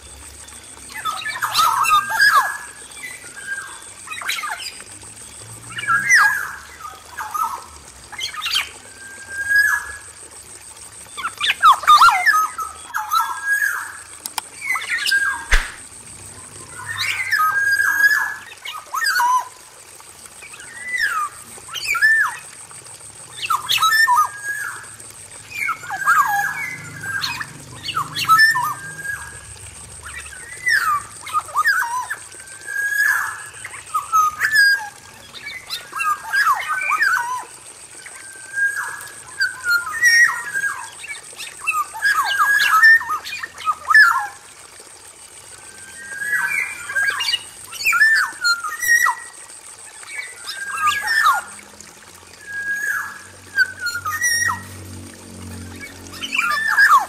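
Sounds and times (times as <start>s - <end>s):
thin steady high tone: 0.0s - 19.6s, 20.4s - 44.5s.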